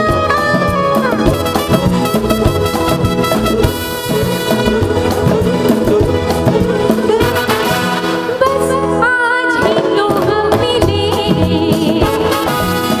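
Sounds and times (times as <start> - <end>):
woman singing: 0.0 - 1.7, 5.1 - 13.0
live band with brass section: 0.0 - 13.0.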